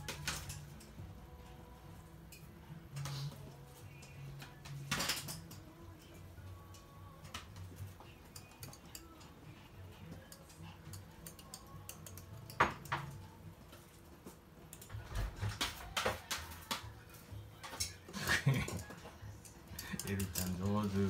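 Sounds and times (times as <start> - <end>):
dog claws clicking on hard floor: 14.8 - 17.0.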